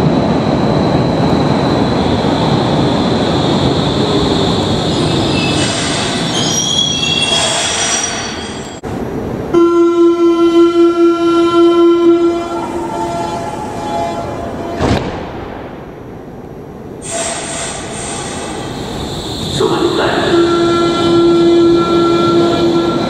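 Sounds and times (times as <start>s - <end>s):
train braking with wheel squeal: 2.9s - 8.8s, 17.0s - 23.0s.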